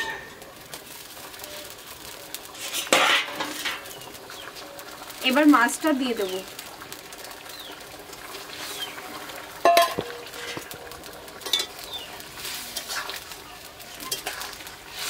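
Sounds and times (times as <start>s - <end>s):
spatula scraping in pan: 0.0s - 4.4s, 8.2s - 15.0s
steady hiss from pot: 0.0s - 15.0s.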